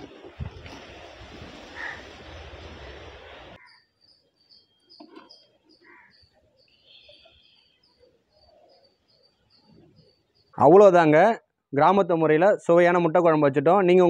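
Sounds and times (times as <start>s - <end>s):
steady hiss: 0.0s - 3.6s
bird chirps: 1.8s - 10.7s.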